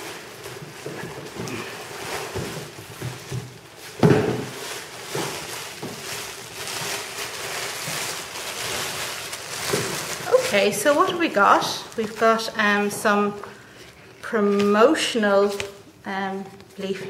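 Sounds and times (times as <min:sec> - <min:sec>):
plastic bag crinkling: 0:00.0 - 0:17.0.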